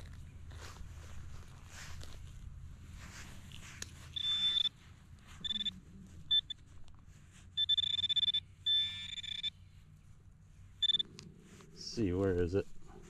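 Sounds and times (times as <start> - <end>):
metal detector beeping: 4.1 - 4.8, 5.4 - 6.6, 7.6 - 9.6, 10.8 - 11.1.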